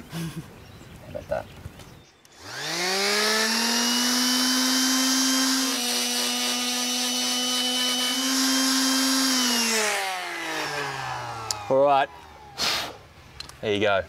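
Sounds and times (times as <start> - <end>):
belt sander whining: 2.2 - 13.2.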